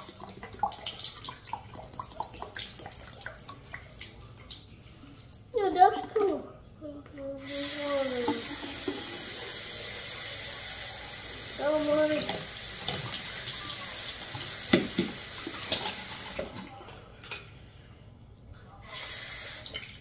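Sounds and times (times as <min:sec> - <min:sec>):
faucet running into sink: 0:07.4 - 0:16.6.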